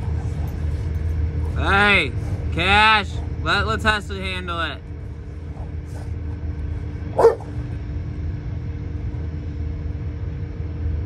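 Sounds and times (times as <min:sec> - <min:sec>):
steady low rumble: 0:00.0 - 0:11.0
dog barking: 0:07.1 - 0:07.5.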